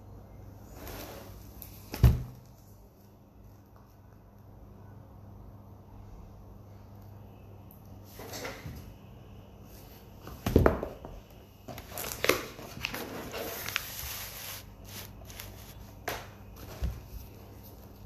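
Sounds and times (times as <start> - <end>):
rustling: 11.8 - 16.0.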